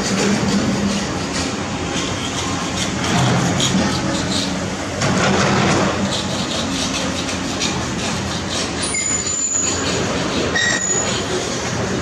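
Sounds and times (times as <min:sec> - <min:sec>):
loud mechanical noise: 0:00.0 - 0:12.0
high metallic squeals: 0:06.0 - 0:11.4.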